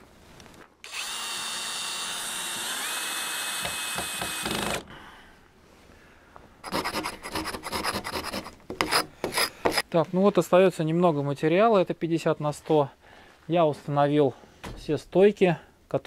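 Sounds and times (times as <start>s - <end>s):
power drill driving screw: 0.8s - 4.8s.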